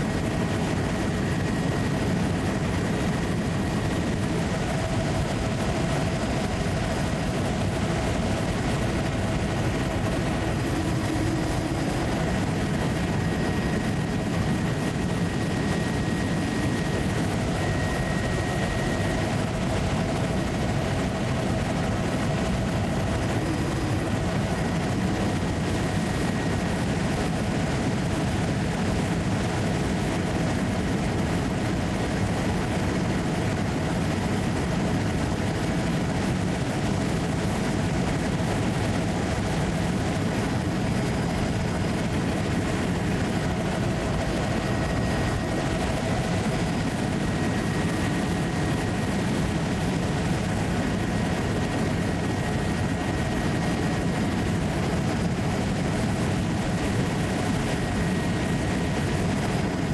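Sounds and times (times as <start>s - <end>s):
aircraft engine drone: 0.0s - 59.9s.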